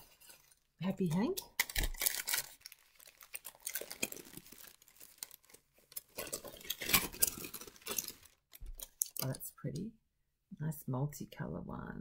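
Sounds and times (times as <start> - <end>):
paper wrapping crinkling: 0.0 - 0.7, 1.5 - 9.4.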